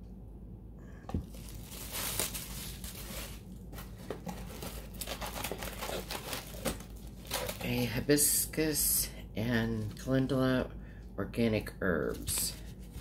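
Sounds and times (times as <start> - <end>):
bubble wrap crinkling: 1.2 - 8.0, 12.1 - 13.0.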